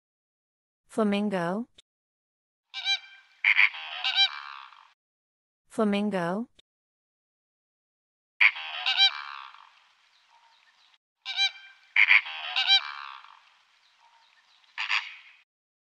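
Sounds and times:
flamingos honking: 2.8 - 4.8, 8.4 - 15.4.

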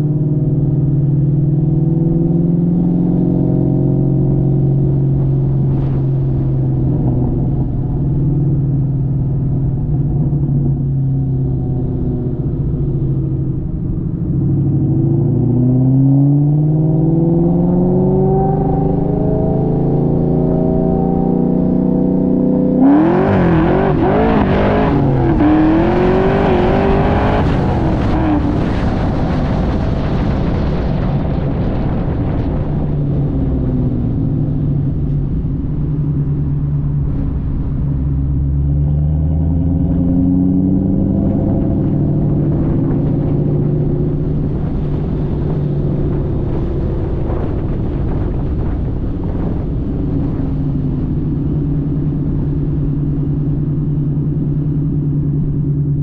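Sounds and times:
car exhaust note cruising: 0.0 - 29.4, 31.7 - 56.0
car engine revving: 0.0 - 30.8, 31.7 - 56.0.

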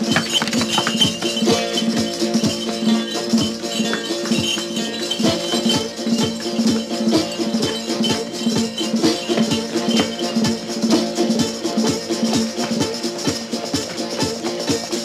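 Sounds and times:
held tones: 0.0 - 12.0
shaker rattle: 0.0 - 15.0.

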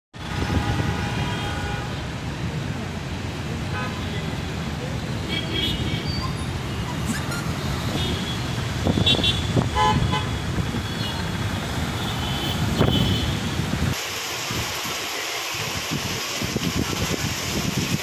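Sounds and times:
vehicle horn toots: 0.2 - 2.0, 9.0 - 11.2, 12.0 - 13.5
motorcycle and car engines: 6.1 - 14.0
tyre hiss on wet road: 7.5 - 18.0
falling rain hiss: 10.6 - 18.0.

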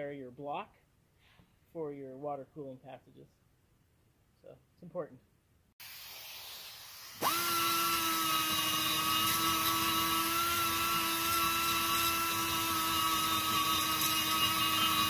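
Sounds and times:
die grinder cutting metal: 7.0 - 15.0.

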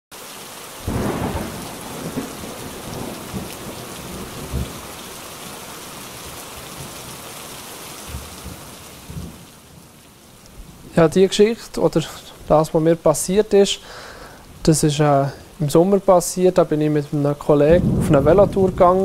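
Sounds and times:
heavy rain: 0.1 - 19.0
thunder rumbling: 0.8 - 5.3, 17.6 - 19.0.

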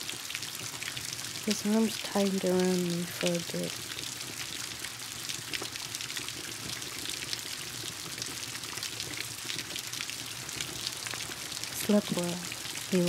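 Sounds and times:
steady rain: 0.0 - 13.0
wood fire crackling: 0.0 - 13.0.

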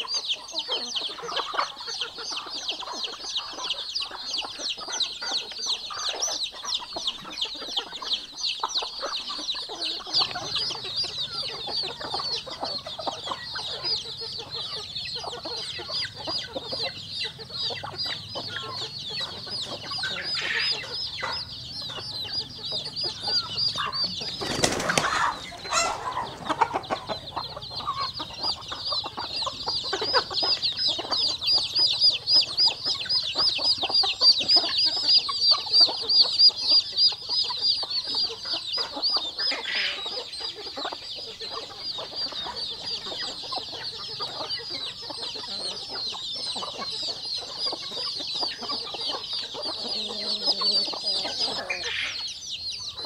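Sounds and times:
chicks peeping: 0.0 - 53.0
hens clucking: 0.0 - 53.0
wings flapping: 24.2 - 26.0.

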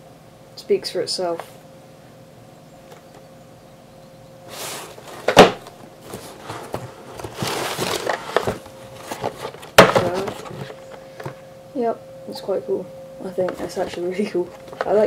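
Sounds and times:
cardboard box handling: 4.5 - 11.4
paper rustling: 4.5 - 11.4
knocks on cardboard box: 5.3 - 5.6.

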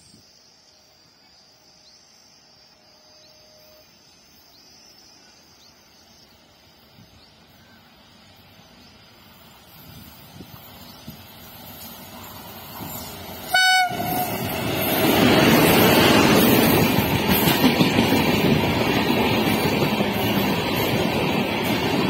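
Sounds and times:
train wheels rumbling on rails: 6.4 - 22.0
train horn blast: 13.5 - 14.5.

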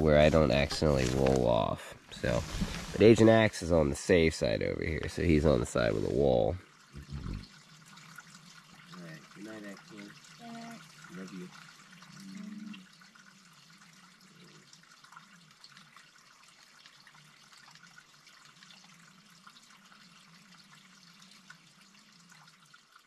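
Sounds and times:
water trickling: 0.0 - 23.0
crackle of drips: 0.2 - 23.0
low voice: 3.0 - 7.4, 9.0 - 10.1.

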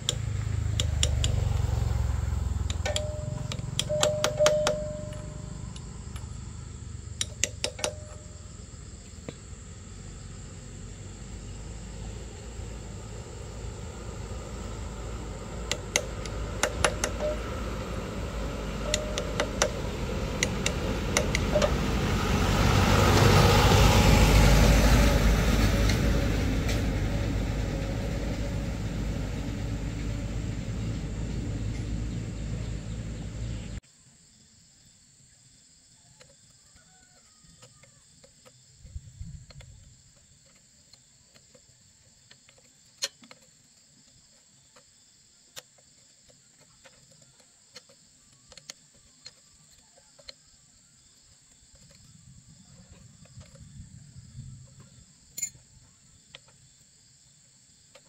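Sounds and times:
wrench clicking on bolts: 0.0 - 1.7, 2.6 - 6.3, 7.2 - 8.3, 15.7 - 17.5, 18.7 - 21.8
motor vehicle passing: 0.0 - 33.8.

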